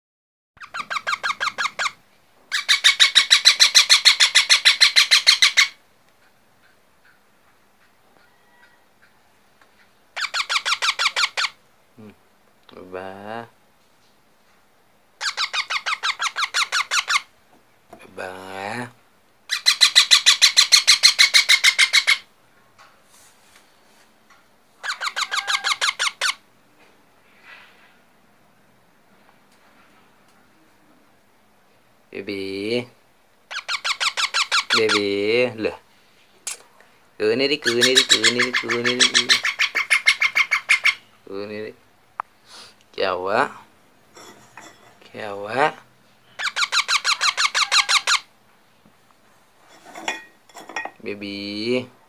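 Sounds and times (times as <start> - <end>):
parakeet chick squeaky calls: 0.6 - 5.8, 10.2 - 11.6, 15.2 - 17.3, 19.5 - 22.3, 24.8 - 26.4, 33.5 - 35.0, 37.6 - 41.1, 46.3 - 48.3.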